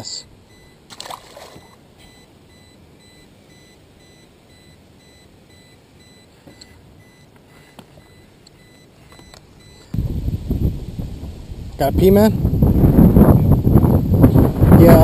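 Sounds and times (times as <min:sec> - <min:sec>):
short electronic beeps: 0:00.5 - 0:00.8, 0:01.5 - 0:07.3, 0:08.0 - 0:10.0.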